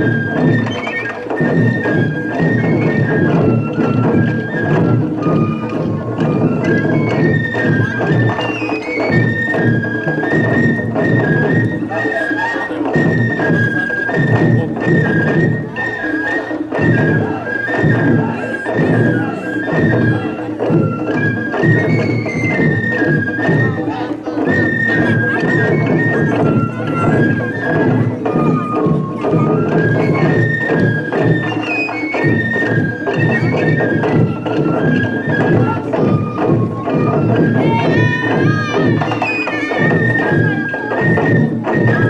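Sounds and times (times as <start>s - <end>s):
bamboo flutes: 0.0s - 42.0s
high held melody line: 0.0s - 42.0s
taiko drums beating: 0.0s - 42.0s.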